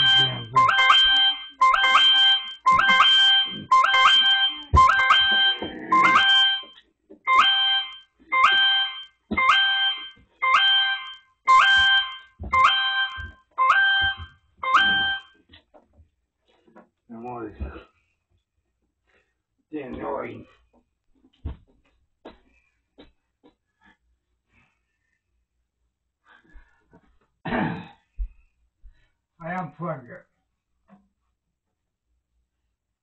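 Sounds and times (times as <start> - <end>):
electronic alarm beeping: 0.0 - 15.4.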